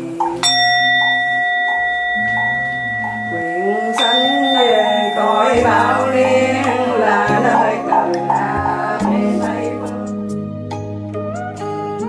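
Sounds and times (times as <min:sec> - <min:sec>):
bowl bell ringing: 0:00.0 - 0:08.4
low-voiced chanting: 0:01.8 - 0:10.2.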